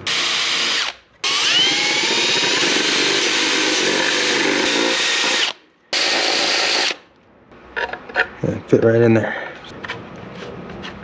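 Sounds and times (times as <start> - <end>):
cordless drill boring through plastic: 0.1 - 7.0.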